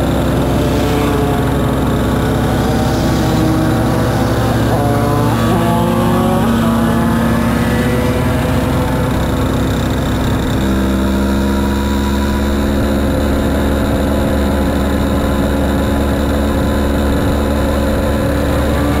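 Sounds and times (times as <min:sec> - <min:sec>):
moped engines running: 0:00.0 - 0:19.0.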